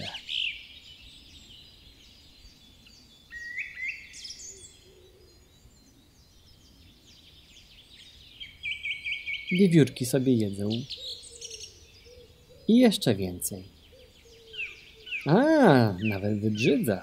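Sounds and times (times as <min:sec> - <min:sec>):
small birds chirping: 0:00.0 - 0:17.0.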